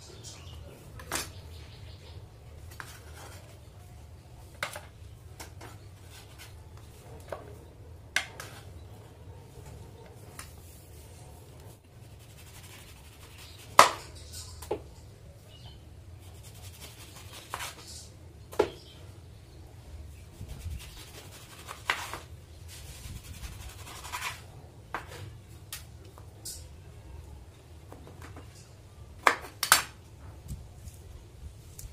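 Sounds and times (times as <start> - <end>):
rubbing and handling noise: 2.5 - 15.1, 20.1 - 26.2.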